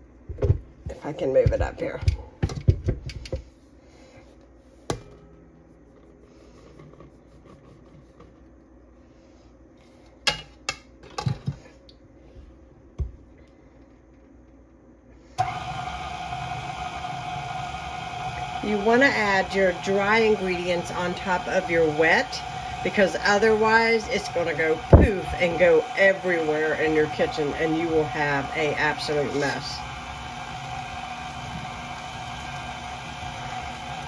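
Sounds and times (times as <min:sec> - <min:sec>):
stand mixer motor running: 0:15.4 - 0:34.0.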